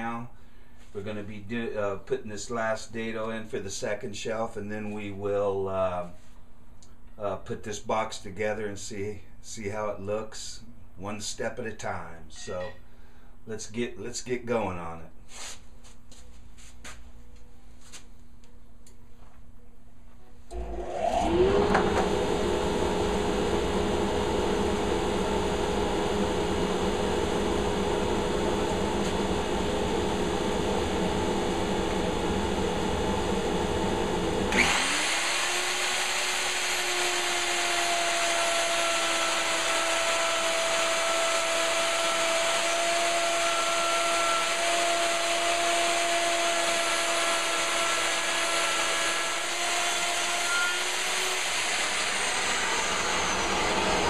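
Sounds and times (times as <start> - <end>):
machine spinning up with high whine: 20.5 - 54.0
woodshop machine motors running: 20.5 - 54.0.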